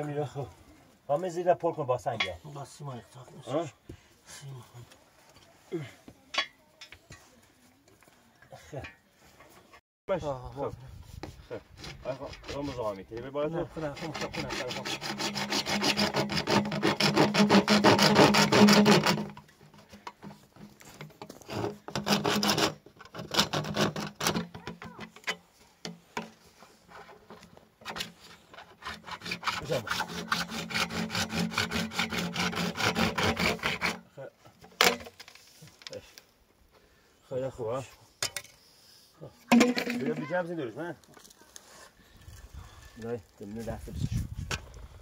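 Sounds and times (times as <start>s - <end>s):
hand saw cutting plastic pipe: 11.7s - 12.9s, 13.8s - 20.3s, 21.0s - 25.4s, 26.9s - 34.1s.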